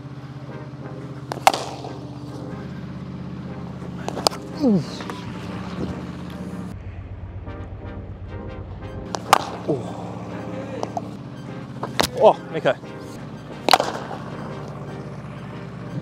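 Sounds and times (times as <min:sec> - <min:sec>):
cricket bat striking ball: 0:01.0 - 0:02.7, 0:03.9 - 0:06.5, 0:09.1 - 0:11.2, 0:11.8 - 0:12.2, 0:13.6 - 0:15.5.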